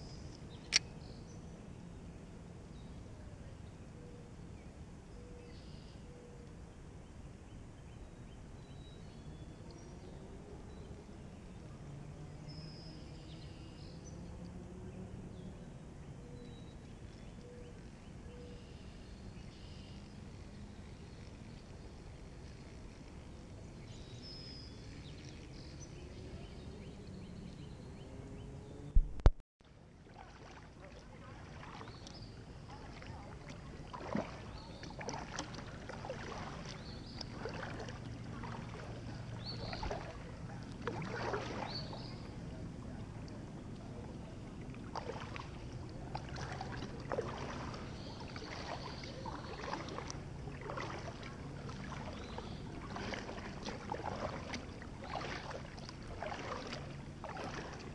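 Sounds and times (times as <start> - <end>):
paddle splashing into water: 30.0 - 57.9
water running off paddle blades: 30.0 - 57.9.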